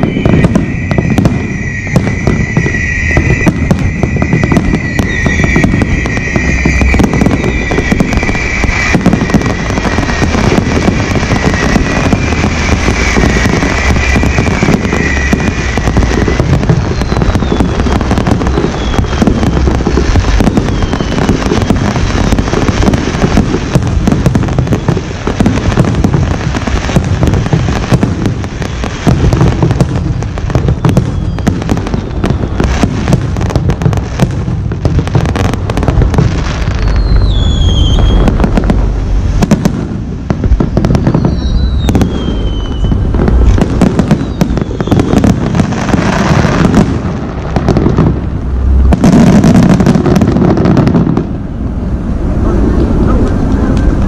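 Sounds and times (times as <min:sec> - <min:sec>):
high falling whistles: 0:00.0 - 0:23.0, 0:30.6 - 0:32.6, 0:36.6 - 0:39.1, 0:40.7 - 0:46.8
fireworks bangs and crackling: 0:00.0 - 0:54.0.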